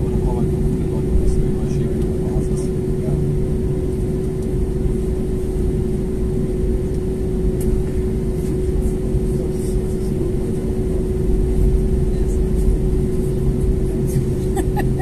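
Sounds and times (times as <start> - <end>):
held engine hum: 0.0 - 15.0
jet engine low rumble: 0.0 - 15.0.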